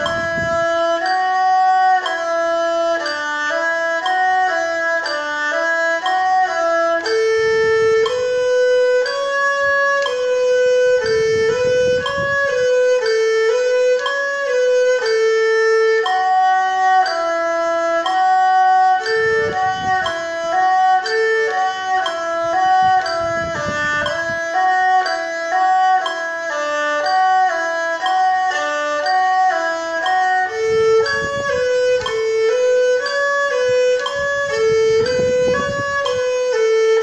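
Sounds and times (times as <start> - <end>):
solo erhu playing: 0.0 - 37.0.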